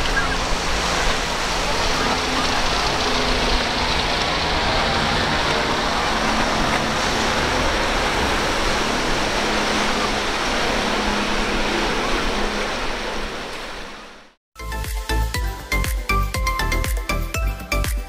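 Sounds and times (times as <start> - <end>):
spray and surf wash: 0.0 - 14.3
outboard motors humming: 0.0 - 14.4.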